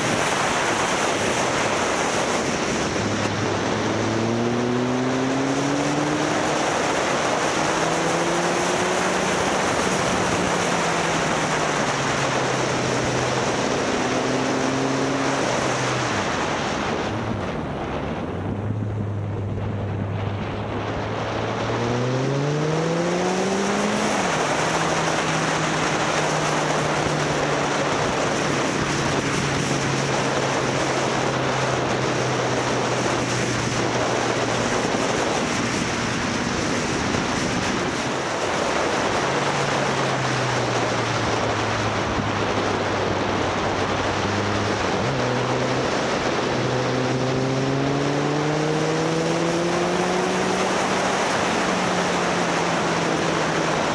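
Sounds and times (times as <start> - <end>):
motorcycle engine revving: 0.0 - 17.1, 18.8 - 53.9
wind noise on microphone: 0.0 - 53.9.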